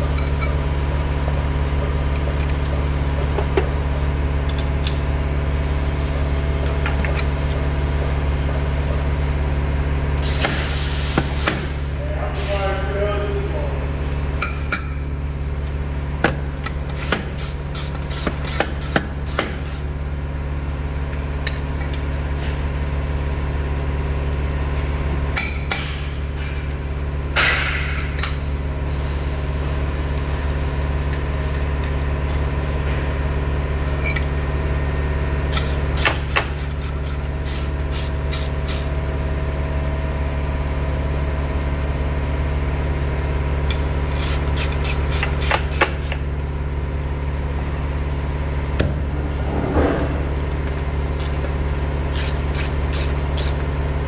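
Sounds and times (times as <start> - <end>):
low mechanical hum: 0.0 - 54.0.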